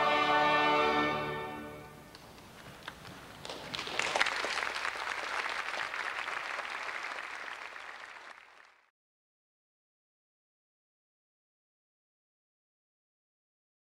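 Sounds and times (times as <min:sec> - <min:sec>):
audience applauding: 0:02.1 - 0:08.9.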